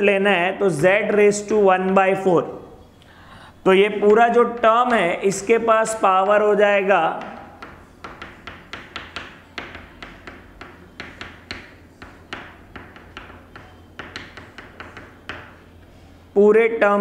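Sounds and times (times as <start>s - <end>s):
chalk tapping and scratching: 3.9s - 16.1s.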